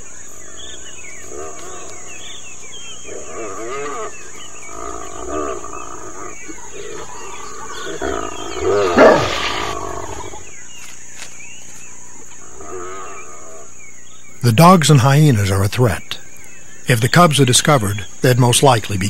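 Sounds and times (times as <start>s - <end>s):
wild dogs twittering and squealing: 0.0s - 10.6s.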